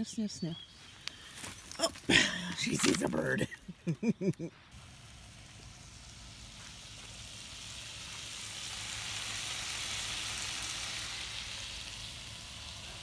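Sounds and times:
bacon sizzling in a skillet: 4.8s - 13.0s.

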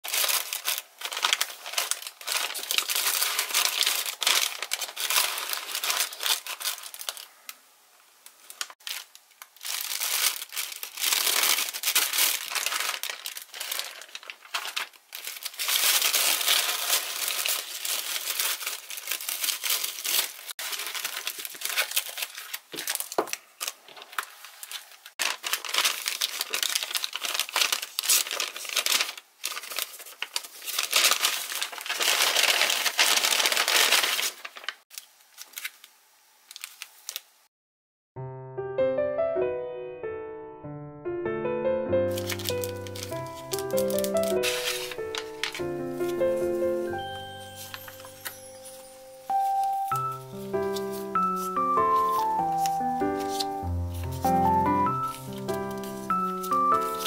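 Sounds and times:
paper crinkling and rustling: 0.0s - 7.6s, 8.4s - 37.3s, 42.1s - 57.0s
tape peeling: 42.1s - 46.5s, 49.9s - 57.0s.

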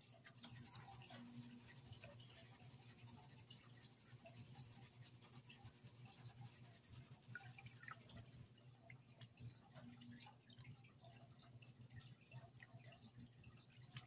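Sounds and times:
low steady hum: 0.0s - 14.0s
water swishing and dripping: 0.0s - 14.0s.

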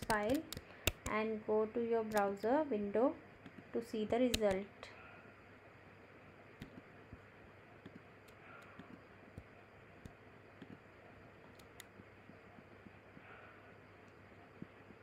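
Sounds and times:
computer clicks: 0.0s - 1.2s, 2.1s - 2.5s, 3.4s - 4.7s, 11.4s - 12.0s
faint hum: 0.0s - 15.0s.

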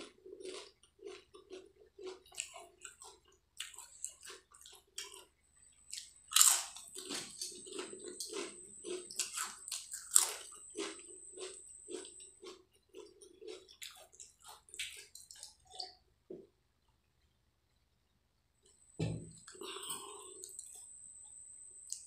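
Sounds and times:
crunching potato chips: 0.0s - 16.0s.

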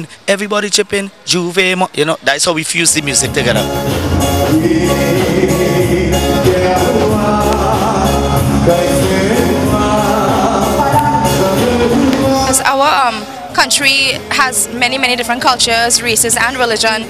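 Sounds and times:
dance beat and bass: 3.2s - 12.9s
person singing: 4.4s - 12.7s.

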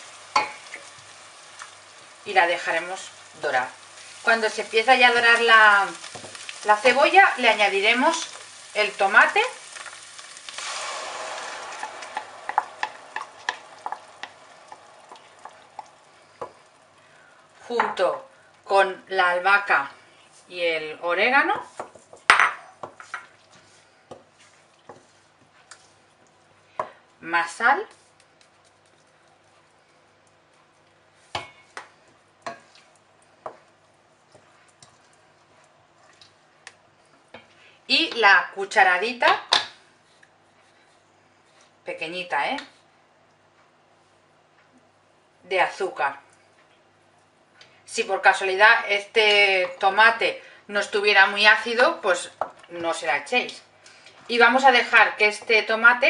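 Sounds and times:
tomato sizzling in hot oil: 0.0s - 40.2s
wooden spoon stirring thick sauce: 10.6s - 17.7s, 21.6s - 26.8s, 27.9s - 37.3s
wooden spoon knocking and clacking: 12.1s - 16.6s.

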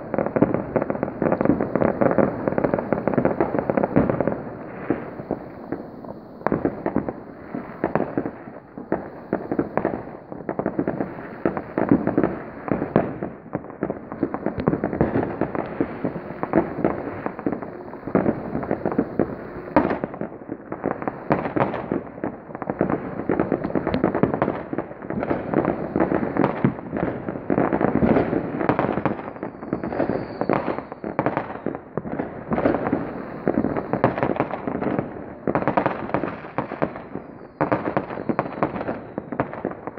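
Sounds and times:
fireworks bangs and crackle: 0.0s - 39.9s.

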